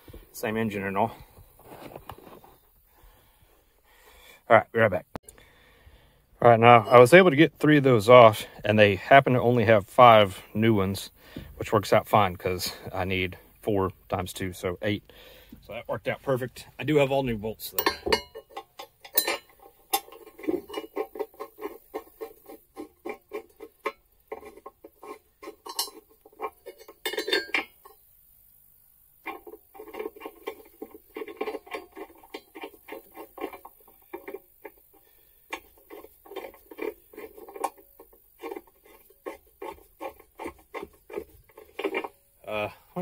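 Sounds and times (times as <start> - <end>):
steel bolts clinking on metal: 17.7 - 28.0, 29.2 - 34.8, 35.5 - 42.3.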